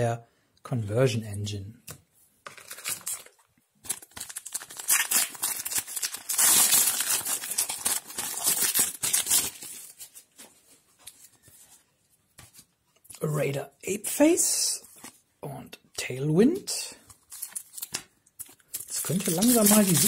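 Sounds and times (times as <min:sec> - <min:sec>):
foil wrapper tearing and crinkling: 0:02.5 - 0:10.1, 0:17.3 - 0:20.0.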